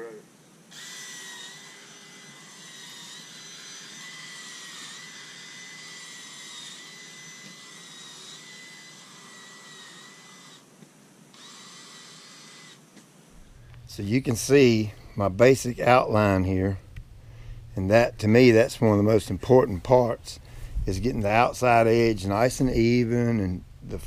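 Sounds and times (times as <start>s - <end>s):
power drill boring into soil: 0.7s - 10.7s, 11.3s - 12.9s.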